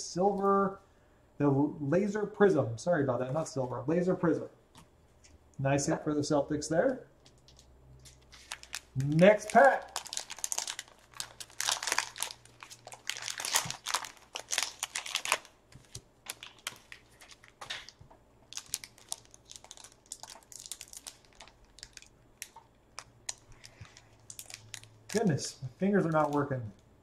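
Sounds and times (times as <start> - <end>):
wrapper crinkling and tearing: 7.2 - 25.4, 26.0 - 26.6.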